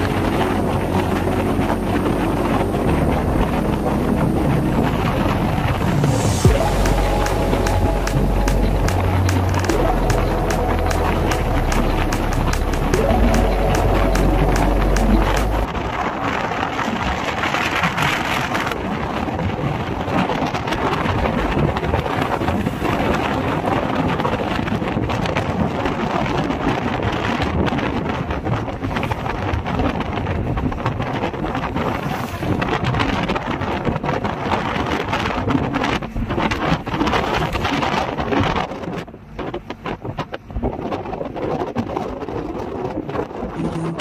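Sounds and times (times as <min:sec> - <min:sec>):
road noise: 0:00.0 - 0:25.4
wind buffeting microphone: 0:00.0 - 0:44.0.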